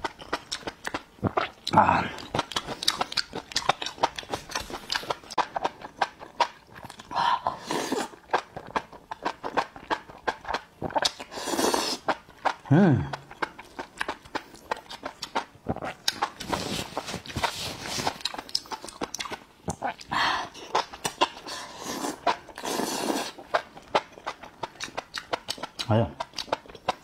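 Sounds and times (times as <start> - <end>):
slurping and wet chewing: 0.0 - 27.0
short vocal sound: 12.7 - 13.2.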